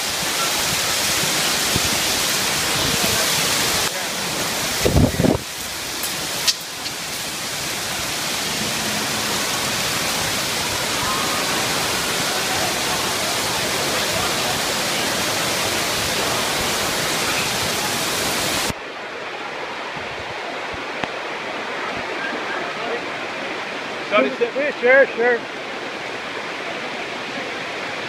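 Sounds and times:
hail and heavy rain pouring: 0.0 - 18.8.

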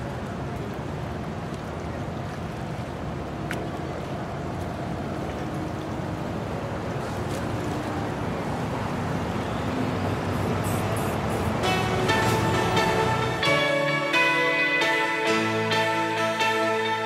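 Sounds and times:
rushing wind and water: 0.0 - 17.0.

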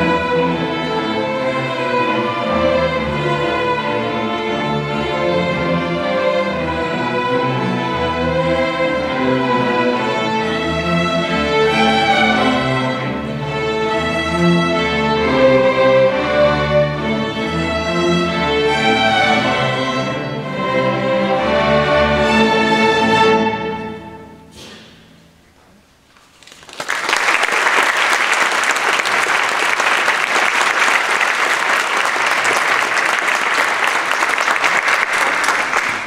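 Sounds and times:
string orchestra chords: 0.0 - 25.4
audience applauding: 26.2 - 36.0.

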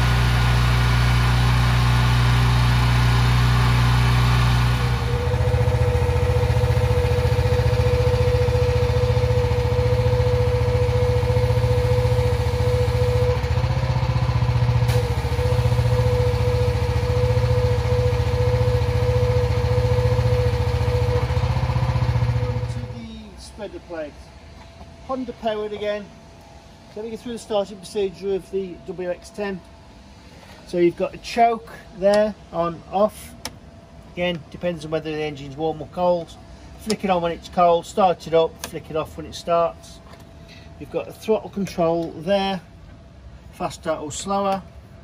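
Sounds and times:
petrol engine running: 0.0 - 24.3
steady whine: 0.0 - 45.0.

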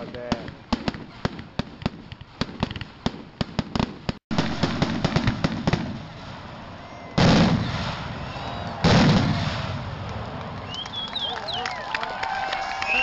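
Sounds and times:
firework shell booms: 0.0 - 10.1
firecracker crackles: 0.0 - 12.9.

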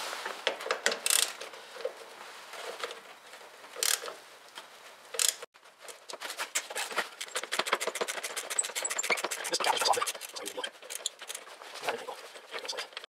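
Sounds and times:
socket ratchet clicking: 3.8 - 4.1, 5.2 - 5.4
metal clicks and scrapes: 6.0 - 13.0.

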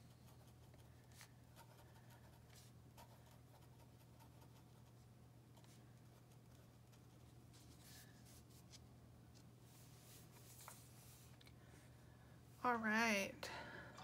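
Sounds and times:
pen nib scratching on paper: 0.0 - 5.0
low steady hum: 0.0 - 14.0.

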